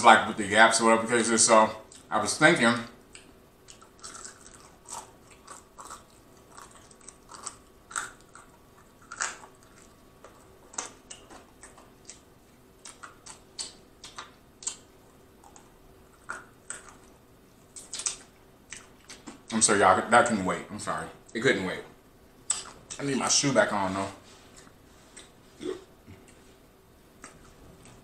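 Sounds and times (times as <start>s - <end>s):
chewing crispy chicken: 3.1s - 19.4s
wet mouth smacks: 17.8s - 19.4s.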